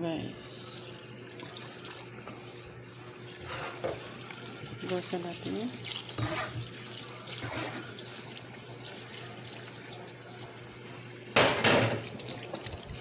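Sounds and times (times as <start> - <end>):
tap water running into colander: 0.8 - 13.0.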